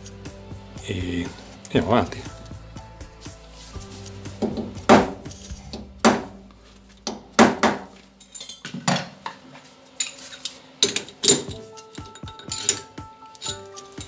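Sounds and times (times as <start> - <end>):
sharp metallic clinks and knocks: 8.2 - 9.1, 10.0 - 14.0.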